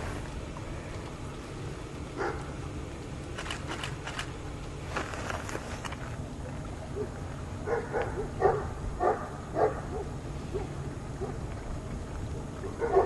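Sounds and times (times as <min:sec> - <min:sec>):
low background rumble: 0:00.0 - 0:13.0
dog barking: 0:02.2 - 0:02.4, 0:07.7 - 0:11.4, 0:12.8 - 0:13.0.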